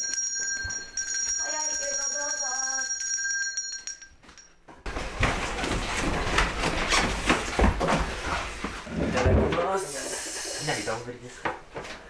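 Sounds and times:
hand bell ringing: 0.0 - 4.6
lively talk: 9.1 - 11.5.

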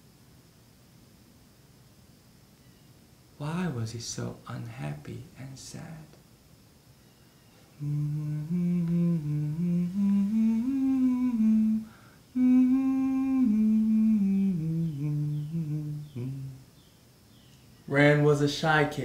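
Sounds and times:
person humming a slow tune: 7.7 - 16.9.

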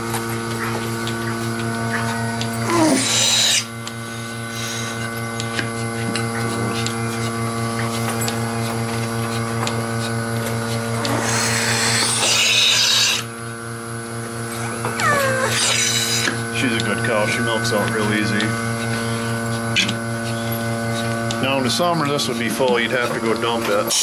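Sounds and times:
milking machine hum: 0.0 - 24.0
air hissing into teat cups: 2.8 - 3.7, 11.1 - 13.3, 15.5 - 16.3.

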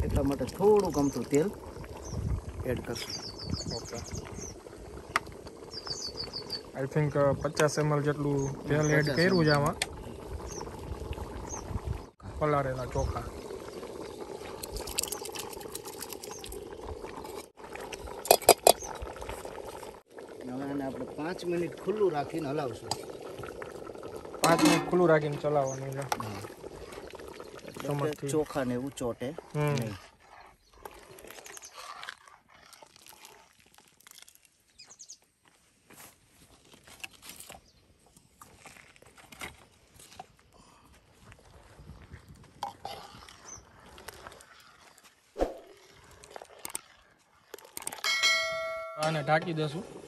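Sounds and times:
water boiling: 0.0 - 34.6, 41.2 - 50.0
bird chirps: 5.7 - 6.8
metal dish clinking on pot: 24.4 - 25.0
ladle scraping a pot: 24.4 - 27.5.

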